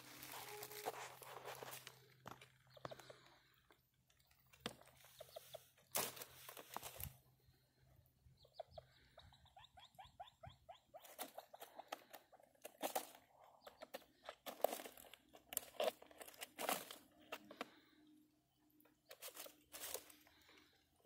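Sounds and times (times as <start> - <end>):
rustling: 0.0 - 7.7, 19.1 - 20.7
grouse clucking: 8.3 - 12.5.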